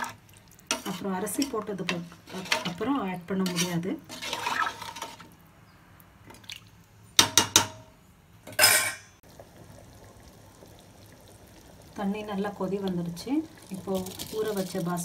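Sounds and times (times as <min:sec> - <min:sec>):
ladle scraping clatter: 0:00.7 - 0:05.3.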